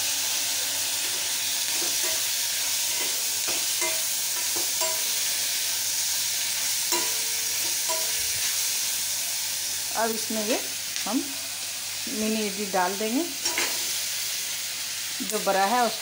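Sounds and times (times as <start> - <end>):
vegetables sizzling in oil: 0.0 - 16.0
metal spatula scraping pan: 1.0 - 5.3, 6.9 - 8.4.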